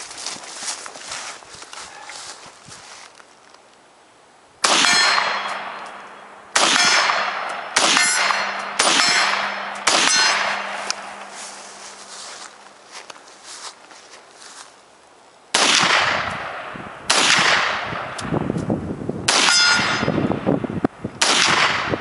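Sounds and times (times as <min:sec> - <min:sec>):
rifle shots echoing: 0:04.6 - 0:11.9, 0:15.5 - 0:18.2, 0:19.3 - 0:20.5, 0:21.2 - 0:22.0.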